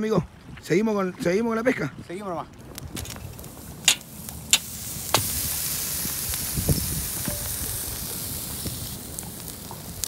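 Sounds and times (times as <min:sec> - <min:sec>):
wood fire crackling: 0:02.2 - 0:10.0
fire popping: 0:02.3 - 0:10.0
high hiss of embers: 0:02.4 - 0:10.0.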